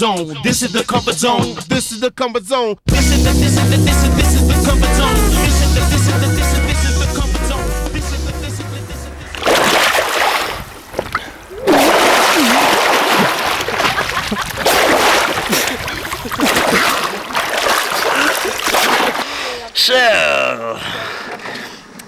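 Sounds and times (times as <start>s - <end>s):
river water splashing and churning: 9.2s - 19.6s.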